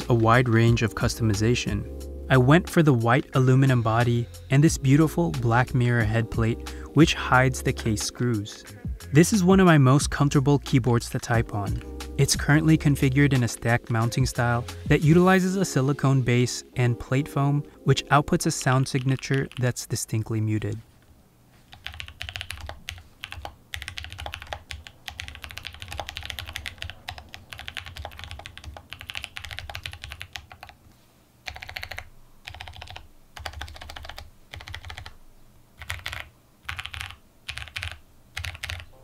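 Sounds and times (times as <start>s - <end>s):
muted mechanical keyboard typing: 18.5s - 19.8s, 21.7s - 30.8s, 31.4s - 35.2s, 35.8s - 38.9s.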